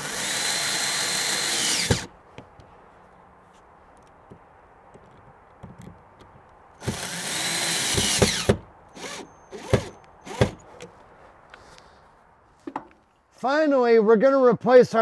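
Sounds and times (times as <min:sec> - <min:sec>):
cordless drill driving a screw: 0:00.0 - 0:02.1, 0:06.8 - 0:10.6.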